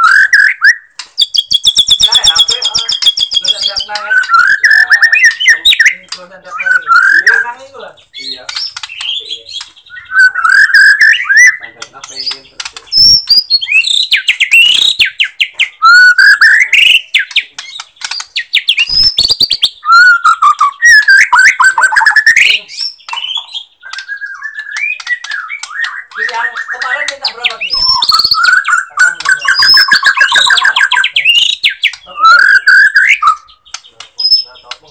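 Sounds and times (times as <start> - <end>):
songbird whistles and trills: 0.0 - 34.9
sharp clicks: 0.3 - 7.5, 8.4 - 34.9.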